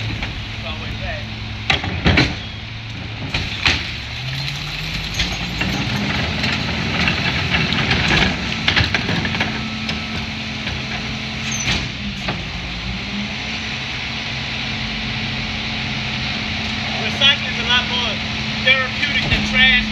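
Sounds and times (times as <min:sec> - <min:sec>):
garbage truck diesel engine revving: 0:00.0 - 0:19.9
recyclables knocking and clattering: 0:03.2 - 0:12.4
packer compacting recycling: 0:03.4 - 0:10.9.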